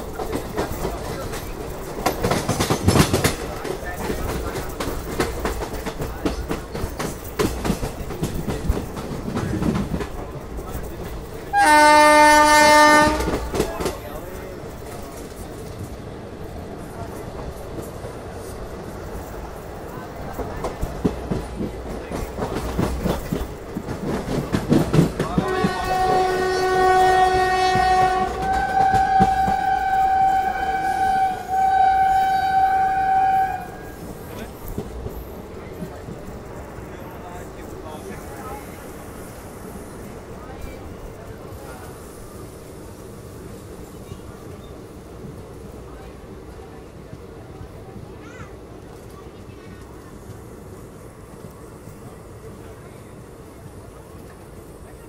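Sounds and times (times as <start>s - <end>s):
train wheels clattering over rail joints: 0.0s - 32.1s
low train rumble: 0.0s - 55.0s
train horn blast: 11.5s - 13.5s, 25.4s - 34.0s.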